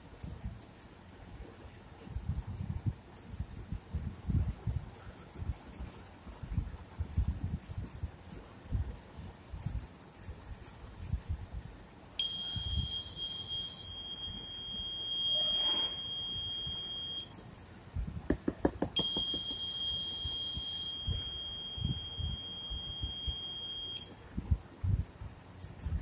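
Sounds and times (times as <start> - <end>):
high-pitched buzzer tone: 12.2 - 17.3, 19.0 - 24.1
quick taps: 18.3 - 19.6.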